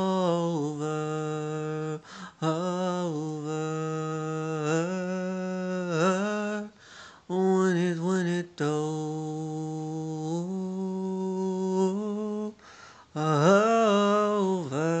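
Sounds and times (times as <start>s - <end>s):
man humming a melody: 0.0s - 6.7s.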